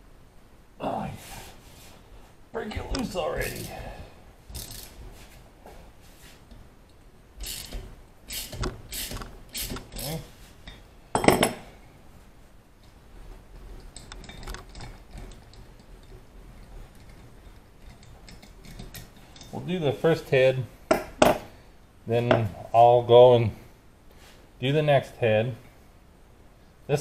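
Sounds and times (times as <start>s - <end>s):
hand ratchet clicking: 4.6s - 5.0s, 7.4s - 10.2s.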